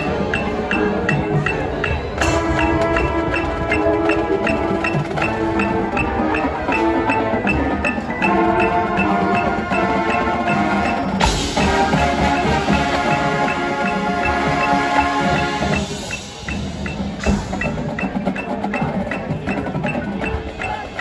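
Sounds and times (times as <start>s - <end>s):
marching band chords: 0.0s - 21.0s
steady high tick: 12.3s - 18.5s.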